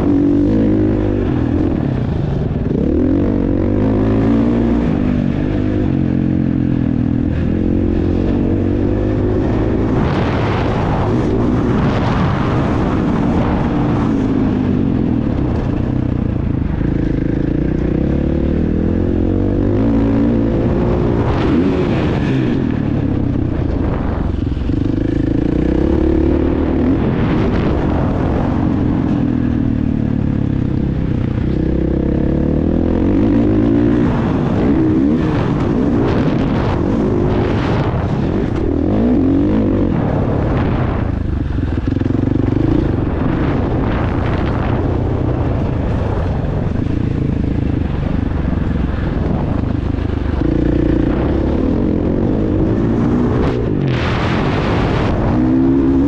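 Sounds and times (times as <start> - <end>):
motocross bike engine revving: 0.0 - 56.0
bursts of rushing noise: 34.0 - 56.0.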